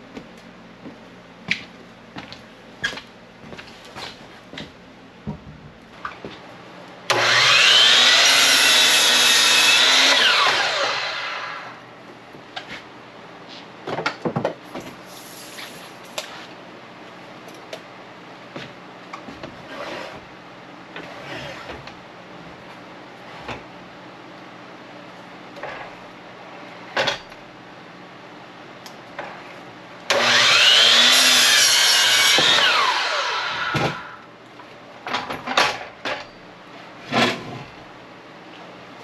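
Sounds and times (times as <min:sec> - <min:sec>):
miter saw motor whine: 0:07.1 - 0:11.8, 0:30.1 - 0:34.2.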